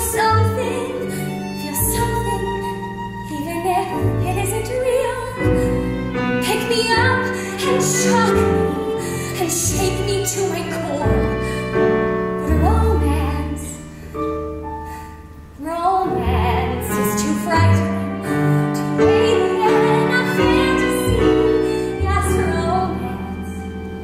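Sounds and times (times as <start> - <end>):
woman singing with vibrato: 15.6 - 21.3.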